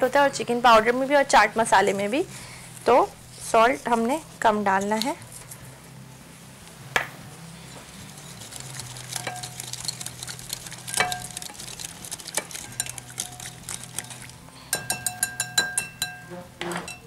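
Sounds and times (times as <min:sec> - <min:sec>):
wire whisk beating batter: 0:07.8 - 0:16.3
whisk clicking against glass bowl: 0:08.2 - 0:16.3
rapid ringing clinks: 0:08.7 - 0:16.3.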